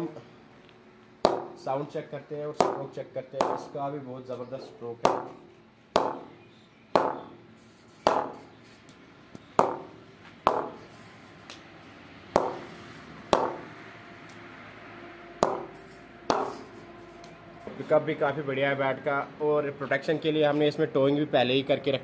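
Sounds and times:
cricket bat knocks: 7.0 - 7.3, 12.4 - 12.7.

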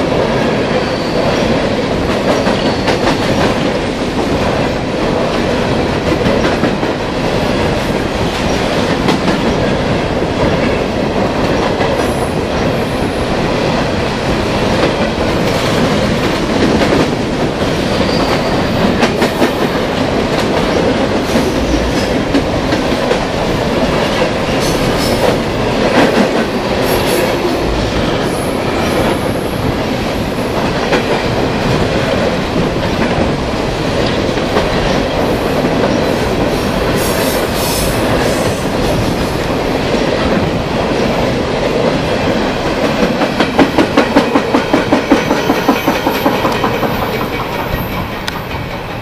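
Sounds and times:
steel wheels rumbling on rail: 0.0 - 49.0
wheels clacking over rail joint: 42.8 - 49.0.

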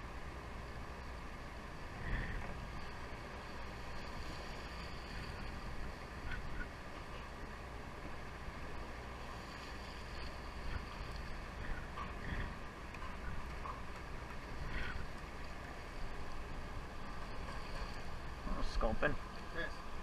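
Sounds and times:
boat engine rumble: 0.0 - 20.0
water washing along hull: 0.0 - 20.0
wind on microphone: 1.8 - 6.9, 9.7 - 18.5.

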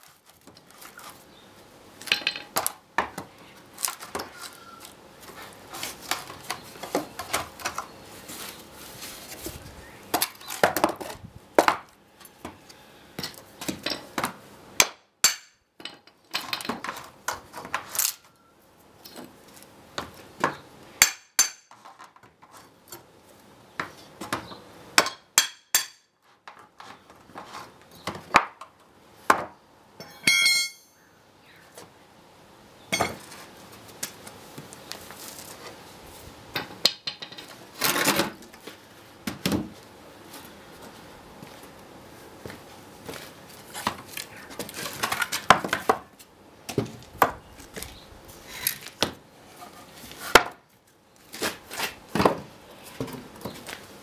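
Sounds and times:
crowbar knocking and cracking wood: 10.1 - 12.6, 43.8 - 46.1, 50.2 - 50.6, 51.3 - 53.6
metallic ringing: 30.0 - 31.0.

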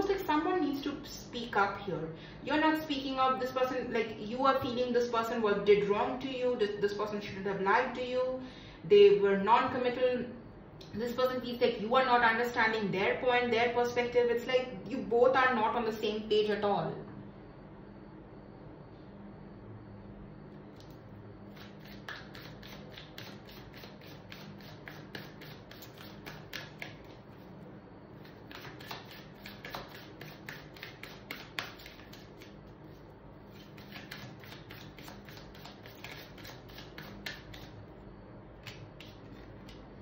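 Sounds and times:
cards being shuffled: 33.6 - 37.7.

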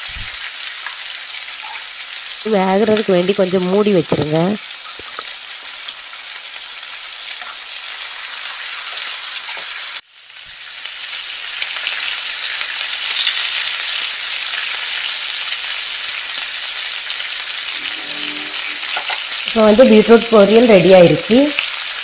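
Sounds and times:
beetroot sizzling in pan: 0.0 - 22.0.

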